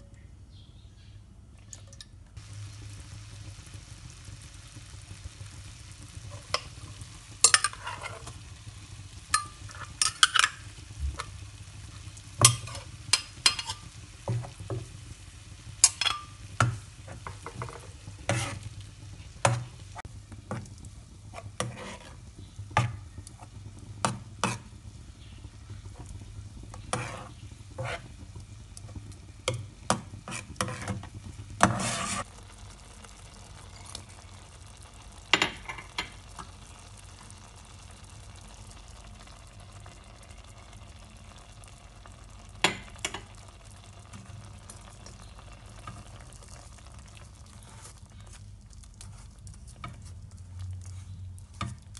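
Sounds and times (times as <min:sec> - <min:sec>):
liquid bubbling in a saucepan: 0:01.4 - 0:51.9
metal spoon scraping a pan: 0:07.4 - 0:08.4, 0:09.3 - 0:11.4, 0:12.4 - 0:14.8, 0:15.8 - 0:18.8, 0:21.3 - 0:23.0, 0:24.0 - 0:24.8, 0:26.7 - 0:28.1, 0:29.5 - 0:32.3.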